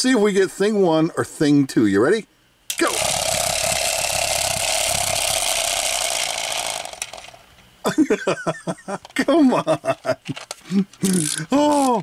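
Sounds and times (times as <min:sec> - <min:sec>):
wind-up toy motor buzzing: 0:02.7 - 0:07.4, 0:10.4 - 0:12.0.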